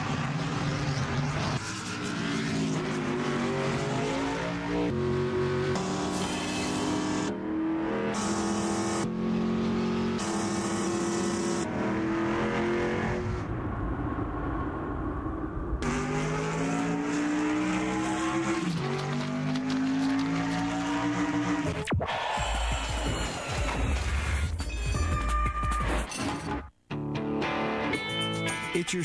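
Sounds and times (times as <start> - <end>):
race car engines accelerating: 0.0 - 21.9.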